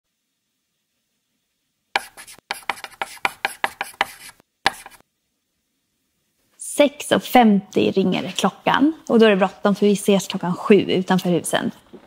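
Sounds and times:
sharp taps or knocks: 0:02.0 - 0:05.0.

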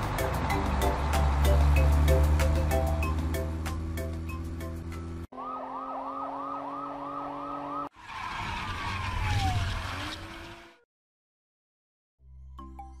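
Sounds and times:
police siren yelping: 0:05.3 - 0:07.9
rushing whoosh with falling tone: 0:05.4 - 0:10.3.

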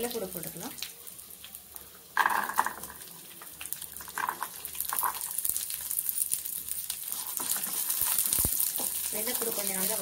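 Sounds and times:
garlic sizzling in hot oil: 0:00.0 - 0:10.0.

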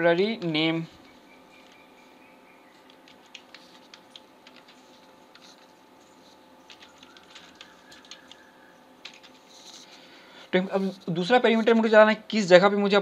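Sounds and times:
keyboard typing clicks: 0:02.7 - 0:05.7, 0:06.7 - 0:09.4.

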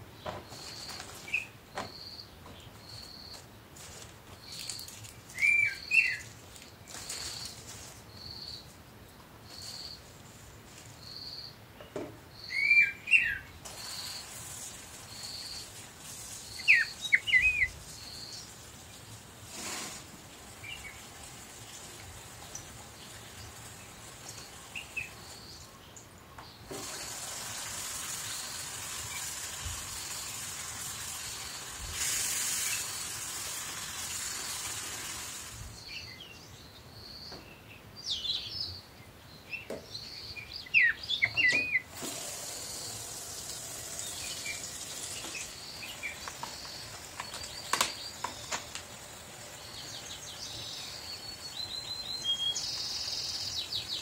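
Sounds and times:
birds chirping faintly: 0:00.0 - 0:27.2, 0:42.5 - 0:54.0.

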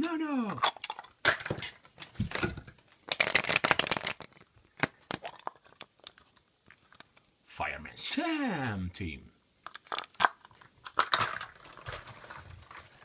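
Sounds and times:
plastic egg shells clicking and rattling: 0:00.0 - 0:01.7, 0:03.0 - 0:07.2, 0:09.6 - 0:13.0.

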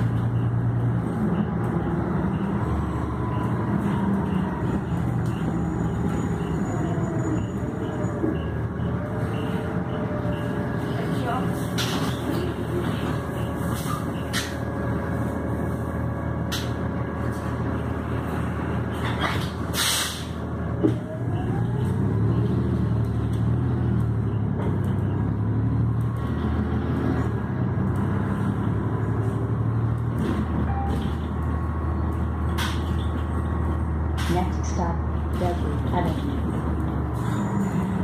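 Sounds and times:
bus engine running: 0:00.0 - 0:38.0
air brake hiss: 0:19.7 - 0:20.3.

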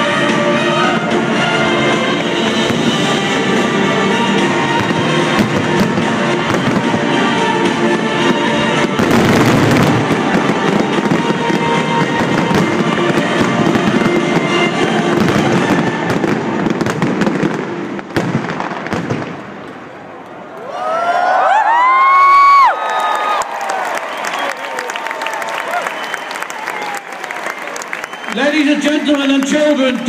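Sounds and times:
music playing: 0:00.0 - 0:18.2
firework shells bursting and crackling: 0:02.2 - 0:19.9.

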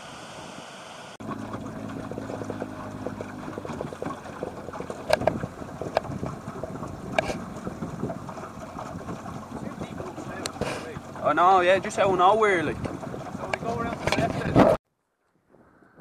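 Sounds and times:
wind on microphone: 0:00.0 - 0:14.8
low steady hum: 0:01.2 - 0:14.0
water splashing against boat hull: 0:01.2 - 0:14.8.

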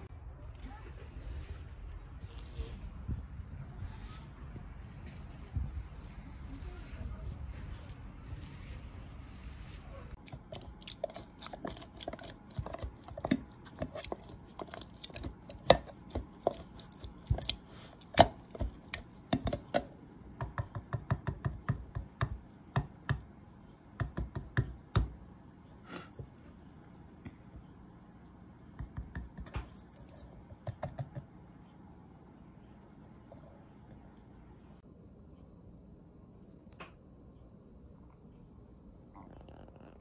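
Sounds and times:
whisk mashing wet pulp: 0:10.2 - 0:25.2
whisk clicking against plastic jar: 0:10.3 - 0:23.2.

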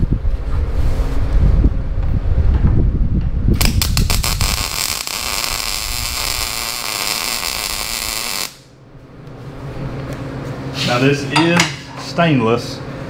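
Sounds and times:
low rumble: 0:00.0 - 0:09.0
welding arc popping and hissing: 0:03.6 - 0:08.7.

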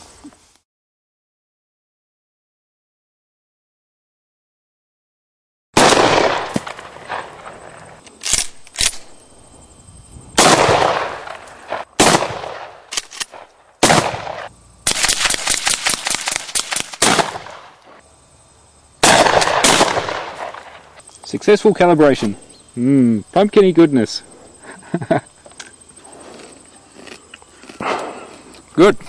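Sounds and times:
gunshots with echoing tail: 0:05.8 - 0:07.6, 0:10.3 - 0:17.7, 0:19.0 - 0:20.8.

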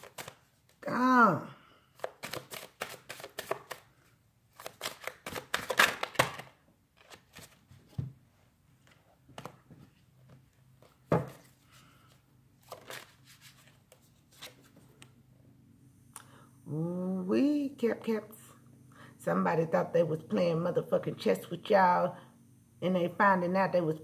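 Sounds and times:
cards being shuffled: 0:00.0 - 0:00.8, 0:01.9 - 0:07.8, 0:08.8 - 0:15.1.

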